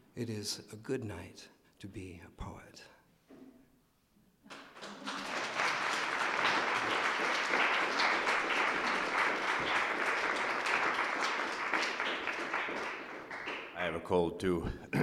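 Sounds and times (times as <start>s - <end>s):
audience applause: 4.5s - 13.8s.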